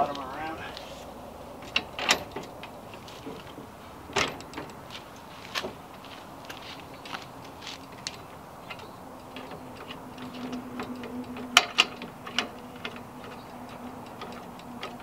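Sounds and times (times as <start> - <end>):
metal clicks and knocks: 1.6 - 5.8, 6.5 - 15.0.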